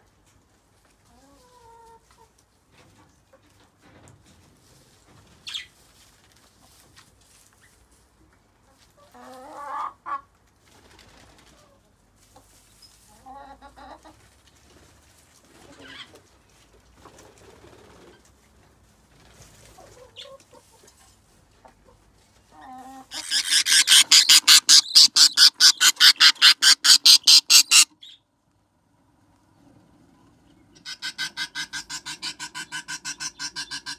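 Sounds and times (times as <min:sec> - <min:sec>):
chickens clucking: 0:01.0 - 0:03.8, 0:08.6 - 0:10.8, 0:11.4 - 0:14.4, 0:19.4 - 0:28.1, 0:30.2 - 0:33.9
rapid raspy chick calls: 0:23.1 - 0:28.2, 0:30.8 - 0:33.9.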